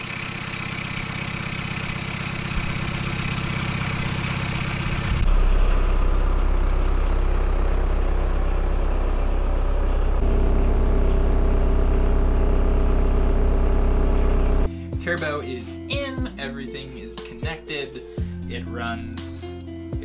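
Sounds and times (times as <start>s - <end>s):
diesel engine idling: 0.0s - 14.7s.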